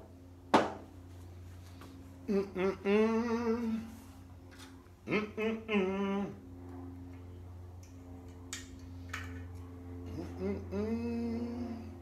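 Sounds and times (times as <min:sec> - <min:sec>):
low electrical hum: 0:00.0 - 0:12.0
man humming: 0:02.2 - 0:04.1, 0:05.0 - 0:06.4, 0:10.0 - 0:12.0.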